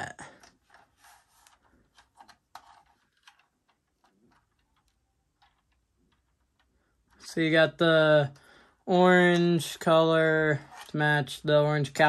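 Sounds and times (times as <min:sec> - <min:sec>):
faint clicks and rubs: 0:00.3 - 0:07.3.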